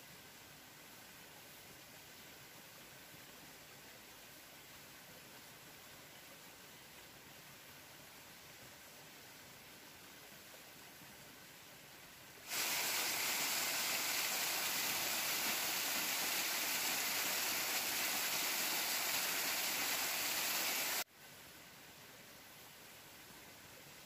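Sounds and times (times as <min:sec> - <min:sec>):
faint hiss: 0:00.0 - 0:24.0
waterfall splashing over rocks: 0:12.4 - 0:21.1.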